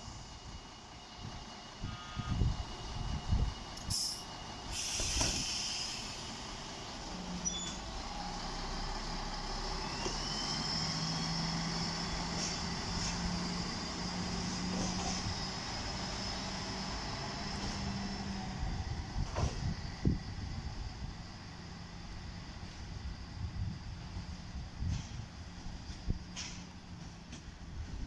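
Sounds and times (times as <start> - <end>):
diesel engine droning: 0.0 - 28.0
air brake hiss: 3.8 - 6.6.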